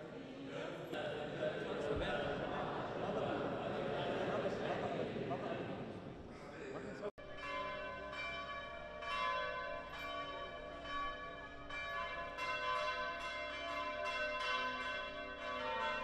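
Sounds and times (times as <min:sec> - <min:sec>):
church bells ringing: 0:07.2 - 0:16.0.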